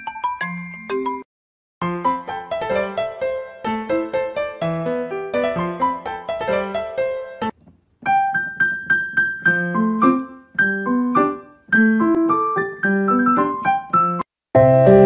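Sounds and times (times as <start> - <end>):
piano melody: 1.8 - 15.0.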